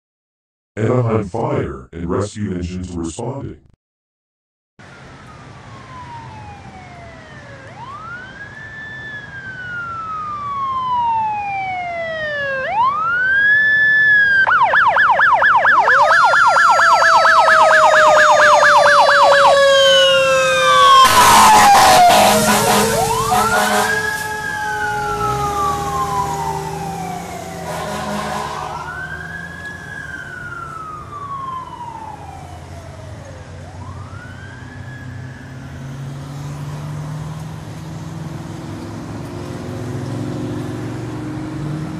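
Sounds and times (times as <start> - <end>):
second siren sliding down: 4.8 - 37.4
fire engine siren wailing: 4.8 - 41.9
loud horn blasts: 21.0 - 24.4, 27.6 - 29.0.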